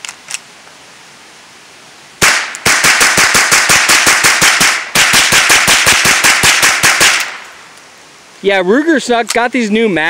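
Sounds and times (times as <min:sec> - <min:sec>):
rifle shots: 0:02.2 - 0:07.5.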